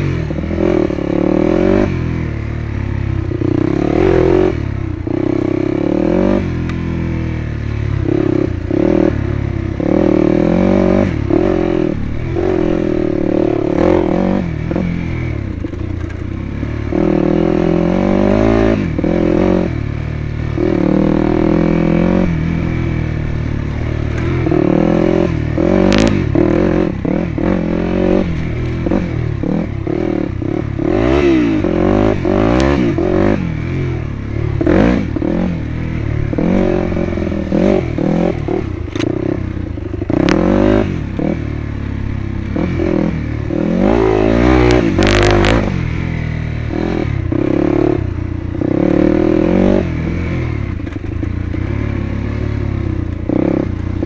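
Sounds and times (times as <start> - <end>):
dirt bike engine revving: 0.0 - 54.0
sharp click: 38.9 - 39.2.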